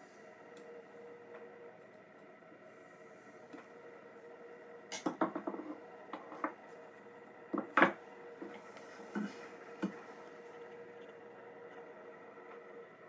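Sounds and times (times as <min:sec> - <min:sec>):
faint steady hum: 0:00.0 - 0:13.0
tools knocking on wooden bench: 0:05.0 - 0:06.6, 0:07.5 - 0:08.0.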